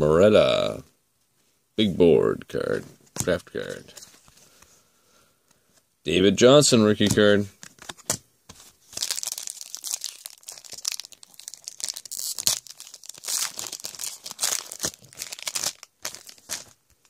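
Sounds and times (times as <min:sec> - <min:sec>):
foil wrapper tearing and crinkling: 0:08.8 - 0:17.0.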